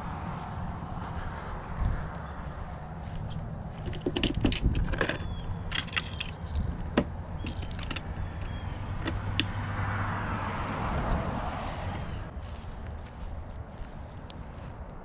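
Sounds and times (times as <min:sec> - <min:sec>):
small metal bells jingling: 0:05.7 - 0:08.0, 0:09.6 - 0:14.7.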